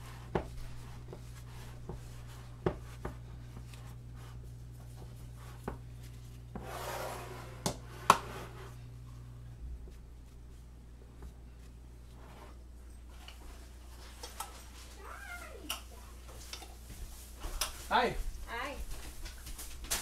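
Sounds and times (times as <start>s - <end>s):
jar sliding across counter: 6.6s - 8.8s.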